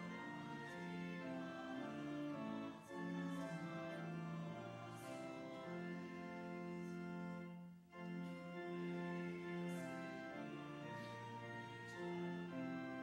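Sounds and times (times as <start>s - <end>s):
organ playing hymn chords: 0.0s - 13.0s.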